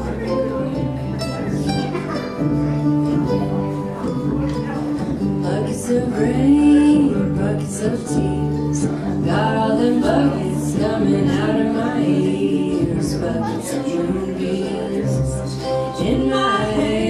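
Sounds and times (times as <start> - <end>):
strummed acoustic guitar: 0.0 - 17.0
voices singing: 4.8 - 17.0.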